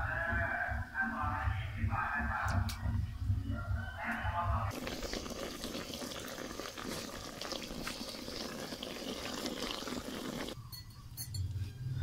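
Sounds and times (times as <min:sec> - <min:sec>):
water boiling in metal pot: 0:04.7 - 0:10.6.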